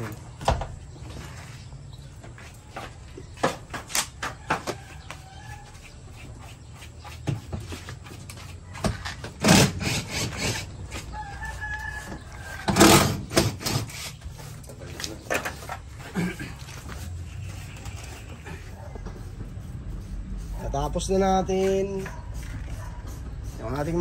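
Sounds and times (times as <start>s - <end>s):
roosters crowing: 4.1s - 6.4s, 8.5s - 14.4s.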